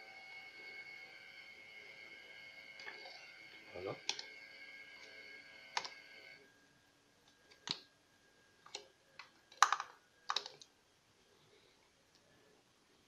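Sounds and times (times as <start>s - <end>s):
plastic connectors clicking: 8.6s - 10.7s.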